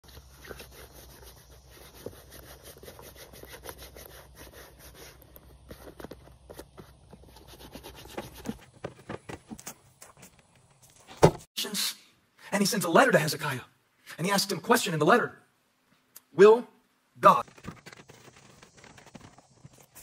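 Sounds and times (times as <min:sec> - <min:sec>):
hands rubbing leather boot: 0:00.0 - 0:08.7, 0:17.4 - 0:20.0.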